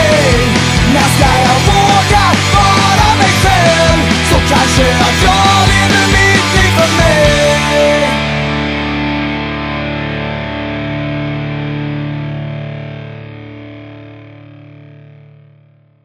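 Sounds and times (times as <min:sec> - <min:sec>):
drums: 0:00.0 - 0:11.2
distorted electric guitar chord: 0:00.0 - 0:15.9.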